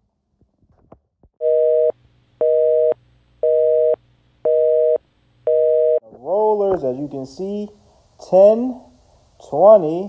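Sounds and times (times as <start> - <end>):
telephone busy signal: 1.4 - 6.0.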